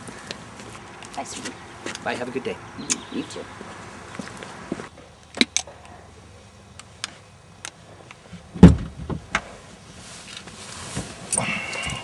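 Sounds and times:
car door thumping shut: 0:08.6 - 0:09.4.

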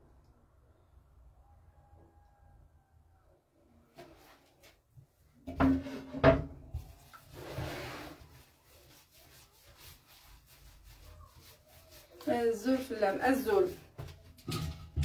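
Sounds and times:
dough rubbing and squishing: 0:06.6 - 0:14.3.

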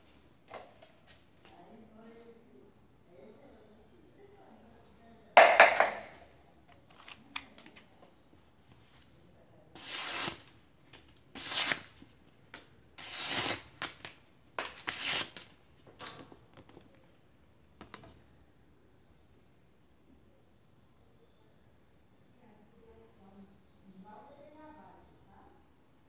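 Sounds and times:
knife slicing paper: 0:09.8 - 0:10.5, 0:11.3 - 0:12.0, 0:13.0 - 0:15.5.

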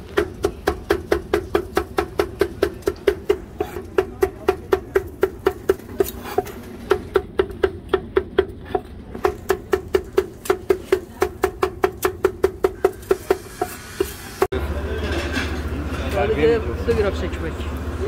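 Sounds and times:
knife chopping on wooden board: 0:00.1 - 0:14.1.

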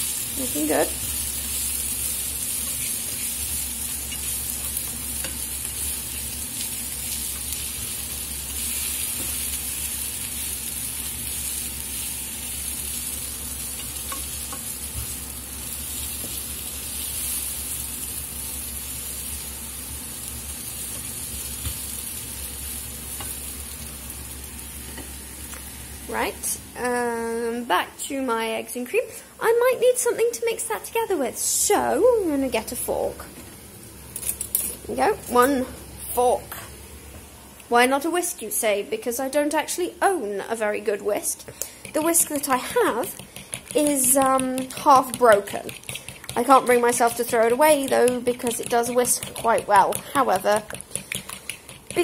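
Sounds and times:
vegetables sizzling in a pan: 0:00.0 - 0:26.6
spatula ticking against pan: 0:43.0 - 0:52.0.

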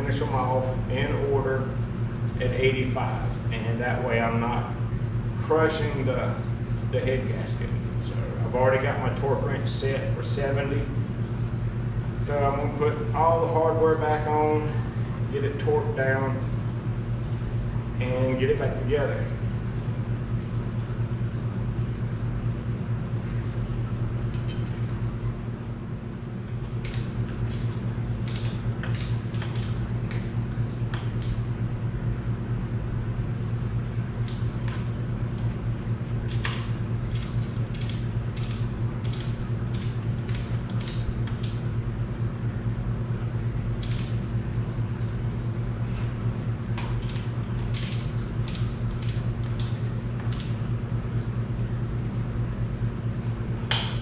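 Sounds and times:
steady low hum: 0:00.0 - 0:54.0
ratchet wrench clicking: 0:28.3 - 0:29.8, 0:36.3 - 0:41.6, 0:43.8 - 0:44.1, 0:47.0 - 0:49.7.

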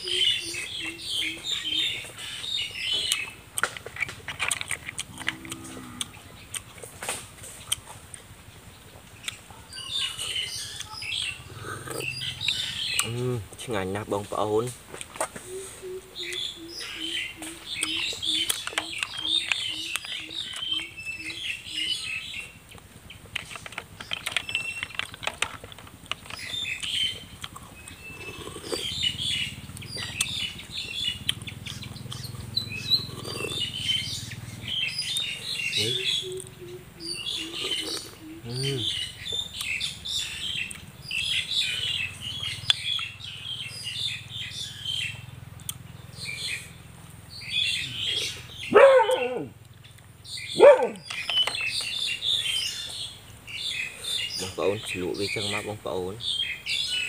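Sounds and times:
small birds chirping: 0:00.0 - 0:57.0
snail shells clicking: 0:03.0 - 0:06.8, 0:17.7 - 0:20.8, 0:22.7 - 0:29.0, 0:29.8 - 0:32.4.

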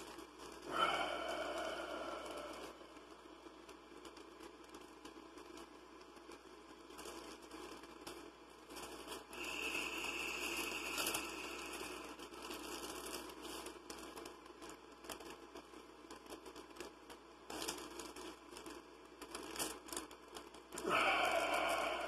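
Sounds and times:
steady hiss: 0:00.0 - 0:22.0
plastic bag crinkling: 0:06.9 - 0:22.0.

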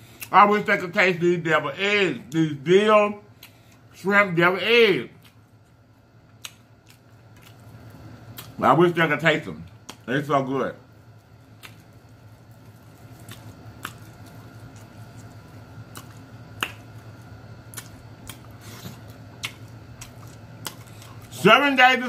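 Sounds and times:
person chewing: 0:05.1 - 0:08.6, 0:11.0 - 0:21.4.

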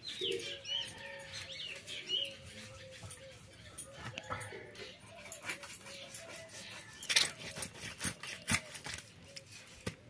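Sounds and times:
blade scraping rasp: 0:05.2 - 0:09.8.

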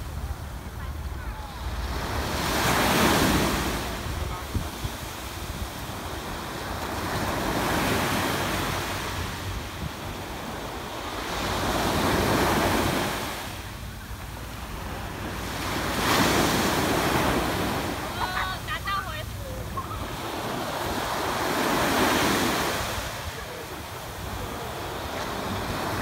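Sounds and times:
wind rumble on microphone: 0:00.0 - 0:07.5, 0:09.2 - 0:15.9
small waves breaking on beach: 0:00.0 - 0:26.0.

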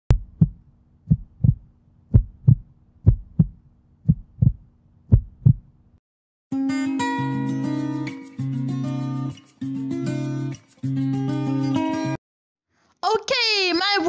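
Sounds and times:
heartbeat thumps: 0:00.1 - 0:05.7
acoustic guitar music: 0:06.6 - 0:12.2.

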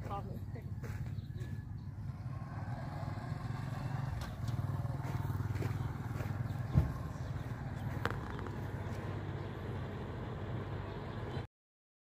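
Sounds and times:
truck engine idling: 0:00.0 - 0:11.5
heavy thump: 0:06.6 - 0:07.2.

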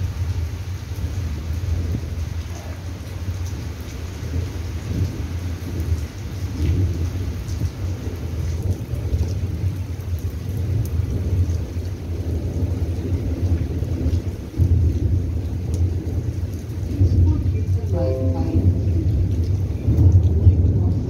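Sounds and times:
rain falling: 0:00.0 - 0:21.0
thunder rumble: 0:12.2 - 0:21.0.

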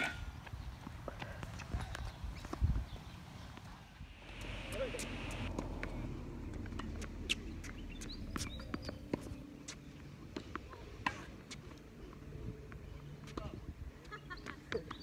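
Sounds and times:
birds chirping faintly: 0:01.9 - 0:10.4.

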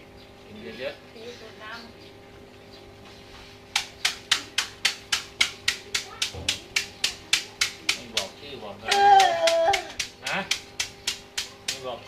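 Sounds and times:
sharp slaps: 0:03.7 - 0:08.3, 0:08.9 - 0:12.0.

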